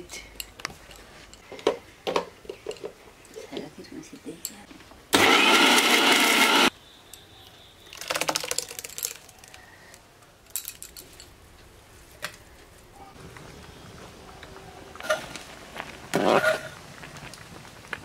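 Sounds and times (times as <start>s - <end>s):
mixer grinder running: 5.2s - 6.7s.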